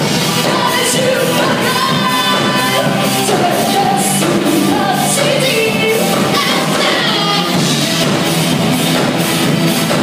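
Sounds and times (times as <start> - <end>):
rock band playing live: 0.0 - 10.0
person singing lead vocal: 0.1 - 7.6.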